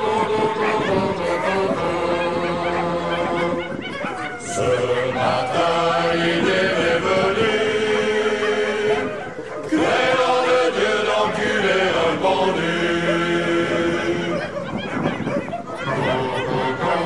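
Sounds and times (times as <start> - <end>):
voices singing in harmony: 0.0 - 17.0.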